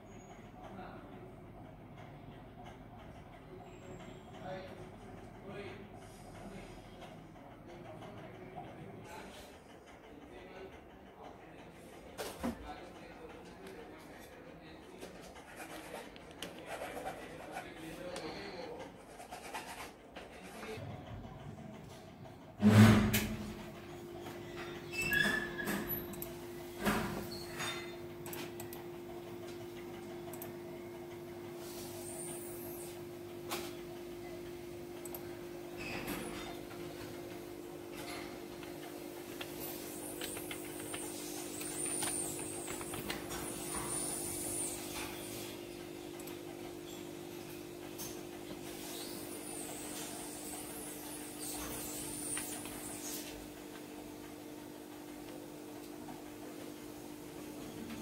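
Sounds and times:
steady electrical hum: 0:11.4 - 0:58.0
cables rubbing in hand: 0:15.0 - 0:20.8, 0:39.4 - 0:44.8.

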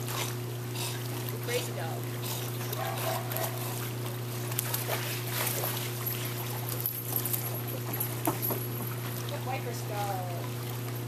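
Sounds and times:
dogs splashing in water: 0:00.0 - 0:11.0
steady low hum: 0:00.0 - 0:11.0.

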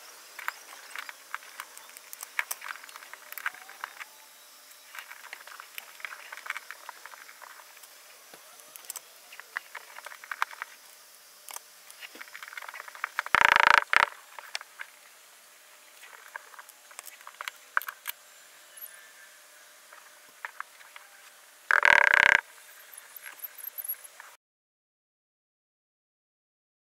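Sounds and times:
clicks and rustles of handled parts: 0:00.3 - 0:04.1, 0:04.8 - 0:10.8, 0:16.0 - 0:18.2.

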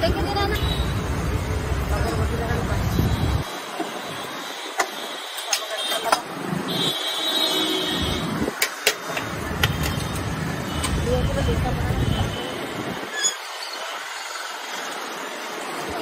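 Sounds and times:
passing traffic rumble: 0:00.0 - 0:04.4, 0:07.9 - 0:16.0.

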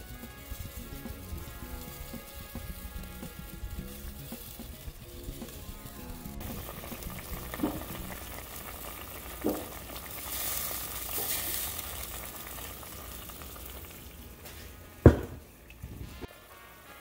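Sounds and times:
liquid sizzling in a pot: 0:00.0 - 0:17.0
light knocks against a pot: 0:07.6 - 0:08.2, 0:09.4 - 0:09.7, 0:15.1 - 0:15.4.

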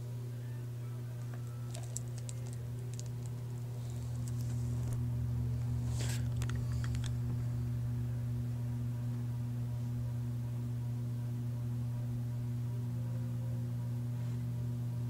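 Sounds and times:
low electrical hum: 0:00.0 - 0:15.0
clicks and rustles: 0:01.2 - 0:05.0, 0:05.9 - 0:07.5.

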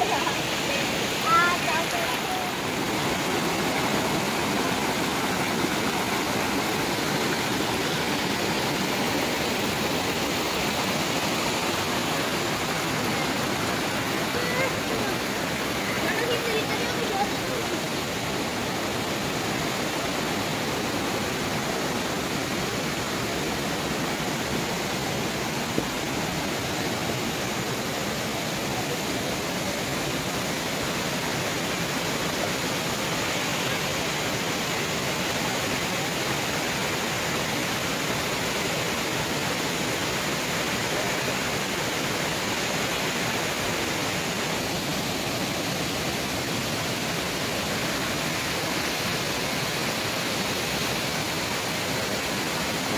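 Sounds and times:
stream rushing over stones: 0:00.0 - 0:52.9.

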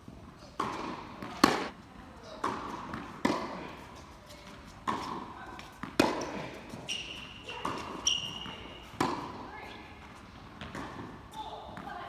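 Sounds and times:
tennis ball pops: 0:01.3 - 0:01.7
high squeak: 0:08.0 - 0:08.6.

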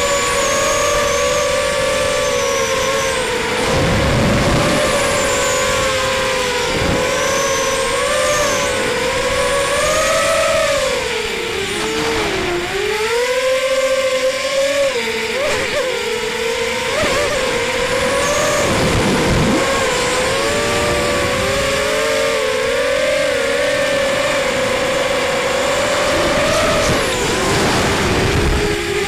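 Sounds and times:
quadcopter motors whining: 0:00.0 - 0:29.0.

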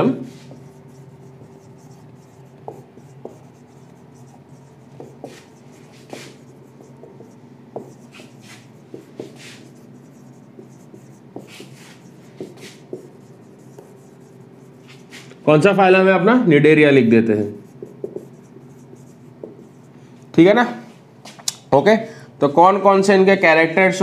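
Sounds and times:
faint steady hum: 0:00.0 - 0:24.0
marker squeaking on whiteboard: 0:00.2 - 0:15.4, 0:17.5 - 0:20.0.

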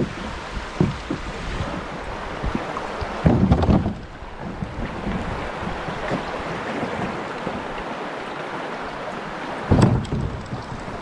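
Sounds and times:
river water rushing over rocks: 0:00.0 - 0:11.0
low thumps: 0:09.7 - 0:11.0.

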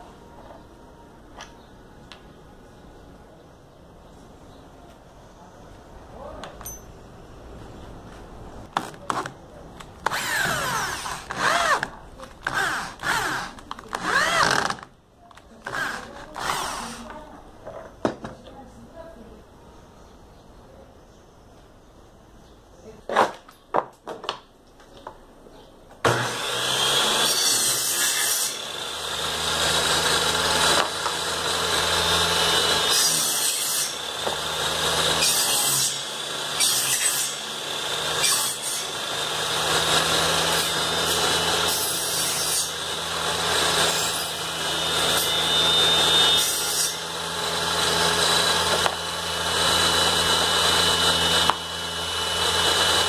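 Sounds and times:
saw blade cutting wood: 0:10.0 - 0:14.8, 0:15.7 - 0:17.1, 0:26.1 - 0:53.0
table saw motor hum: 0:10.0 - 0:14.8, 0:15.6 - 0:17.2, 0:26.1 - 0:53.0.

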